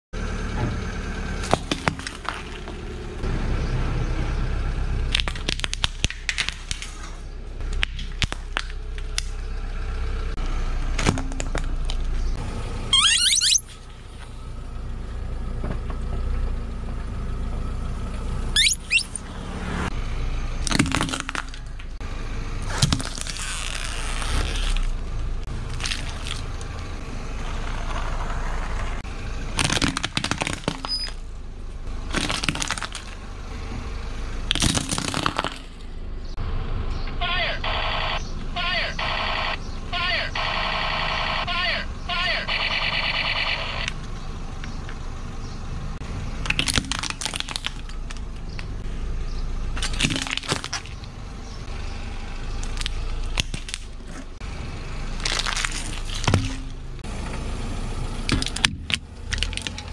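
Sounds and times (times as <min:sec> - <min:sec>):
car engine running low: 0:00.2 - 0:59.9
objects crunching under tyre: 0:01.4 - 0:03.1, 0:05.1 - 0:09.4, 0:10.8 - 0:12.4, 0:20.6 - 0:22.0, 0:22.6 - 0:31.2, 0:31.8 - 0:33.4, 0:34.4 - 0:36.1, 0:46.4 - 0:51.7, 0:52.4 - 0:57.1, 0:58.2 - 0:59.9
rubber ducks squealing: 0:12.9 - 0:13.7, 0:18.6 - 0:19.2.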